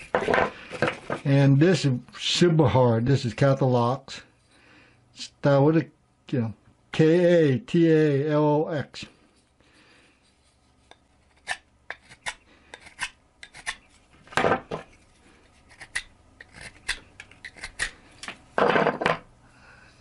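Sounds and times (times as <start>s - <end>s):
knife shaving hard wood: 10.3s - 14.0s, 14.8s - 18.3s.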